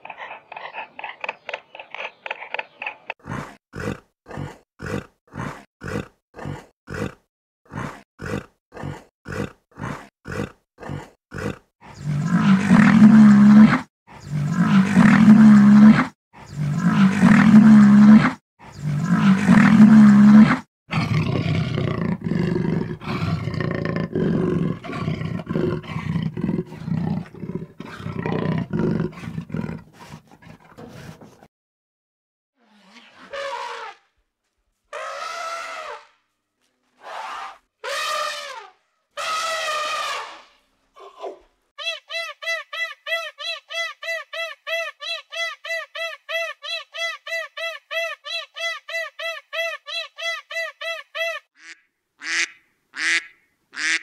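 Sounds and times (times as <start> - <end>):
animal grunting: 0.0 - 31.5
animal roaring: 3.3 - 30.2.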